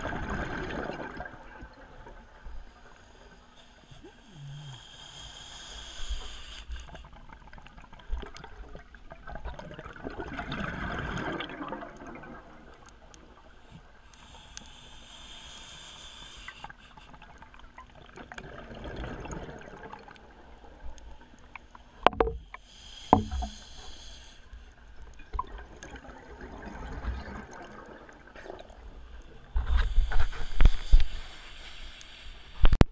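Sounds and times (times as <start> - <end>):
exhaled bubbling underwater: 0.0 - 2.4, 7.1 - 13.5, 17.2 - 23.6, 25.0 - 29.4
regulator breathing hiss: 2.7 - 7.0, 14.1 - 17.2, 22.5 - 24.7, 29.7 - 32.7
sharp knocks: 22.1 - 22.4, 23.1 - 23.5.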